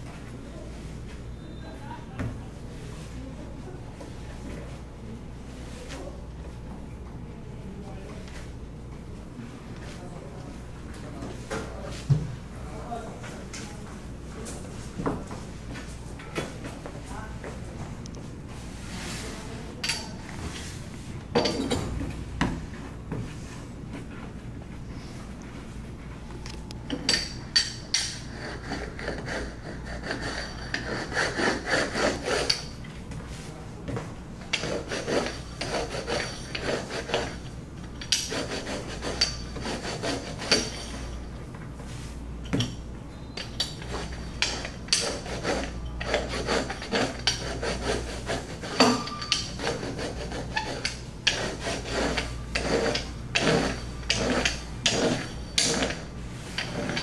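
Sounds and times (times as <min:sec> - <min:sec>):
rolling pin rolling over dough: 0:27.7 - 0:41.2, 0:43.4 - 0:57.0.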